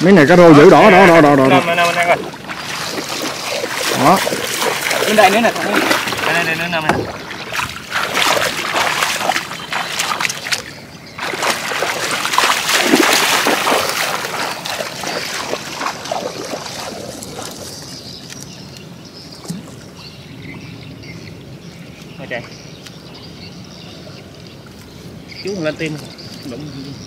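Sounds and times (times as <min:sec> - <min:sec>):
water splashing: 0:00.0 - 0:18.3.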